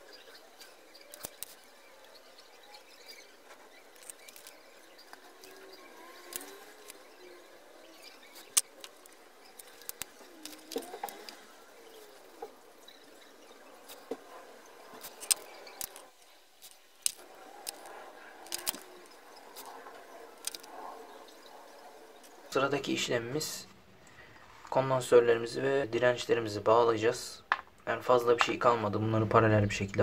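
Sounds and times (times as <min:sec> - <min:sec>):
metal clicks and ticks: 0:00.6 - 0:01.6, 0:03.9 - 0:07.0, 0:15.0 - 0:20.8.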